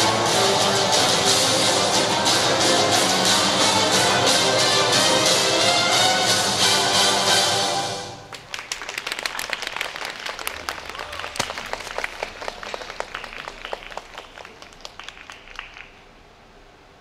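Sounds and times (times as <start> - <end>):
small audience applauding: 8.2 - 16.2.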